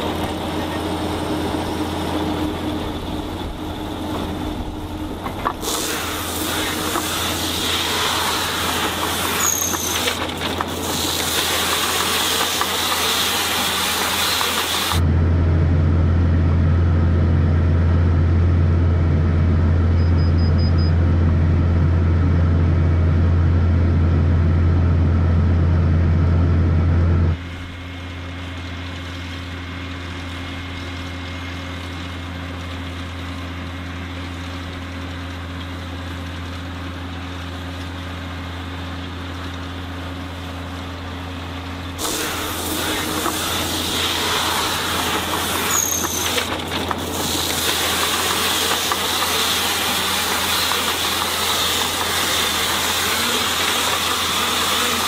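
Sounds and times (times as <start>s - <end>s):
tractor engine droning: 0.0s - 55.0s
baler wrapping hiss: 5.4s - 15.0s, 42.0s - 55.0s
machine squeals: 9.2s - 10.2s, 19.9s - 21.0s, 44.3s - 46.5s.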